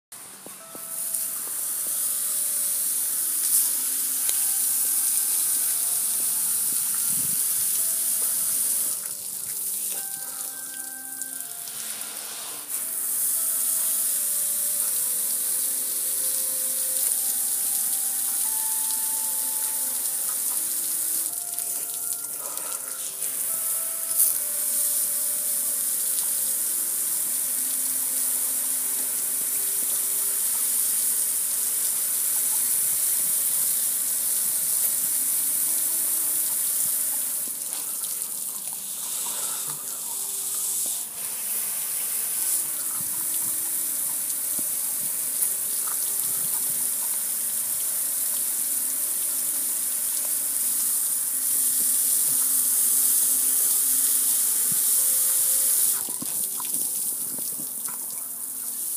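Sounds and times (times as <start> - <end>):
hose water spraying on metal grill: 0.6 - 58.9.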